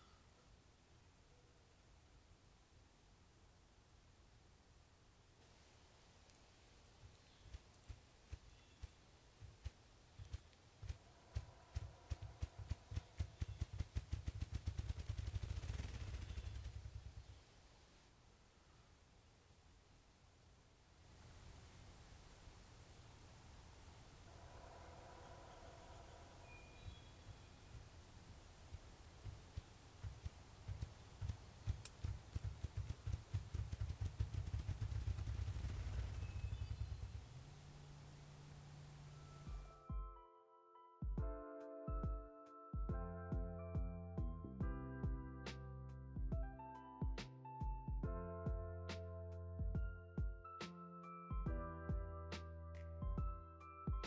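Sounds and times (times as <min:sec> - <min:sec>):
grouse wingbeat drumming: 0:07.0 - 0:17.3, 0:28.7 - 0:37.3.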